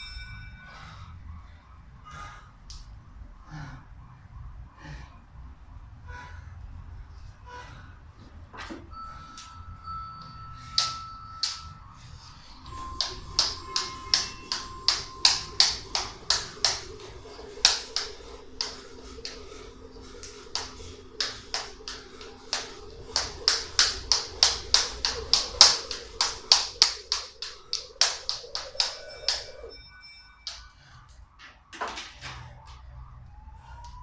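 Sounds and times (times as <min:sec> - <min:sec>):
jump rope slapping wooden floor: 0:20.5 - 0:29.4.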